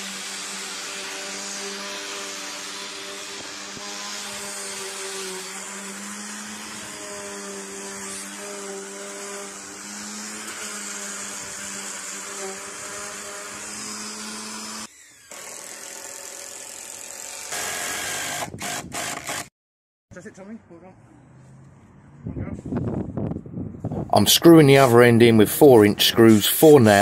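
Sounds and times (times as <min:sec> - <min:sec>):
electric sander running: 0:00.0 - 0:19.5
cordless drill driving screw: 0:10.4 - 0:19.5.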